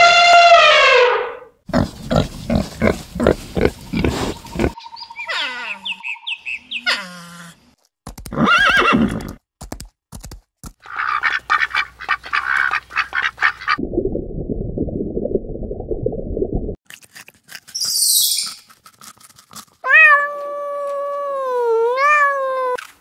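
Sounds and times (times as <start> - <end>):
duck quacking: 10.9 - 13.8.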